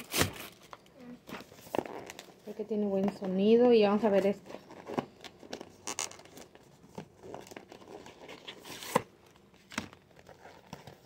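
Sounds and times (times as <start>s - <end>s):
paper packaging rustling: 0.0s - 2.6s.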